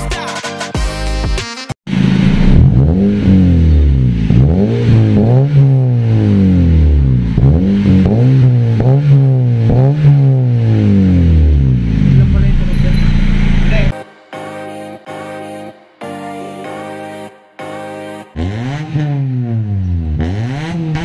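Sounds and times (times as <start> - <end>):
car exhaust revving: 1.9 - 13.9, 18.4 - 21.0.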